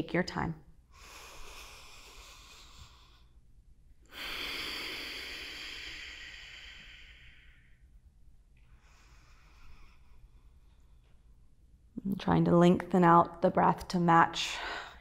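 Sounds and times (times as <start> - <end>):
woman breathing in: 0.9 - 3.4, 4.1 - 8.0, 8.6 - 11.1, 14.5 - 15.0
woman breathing out: 0.9 - 3.4, 4.1 - 7.9.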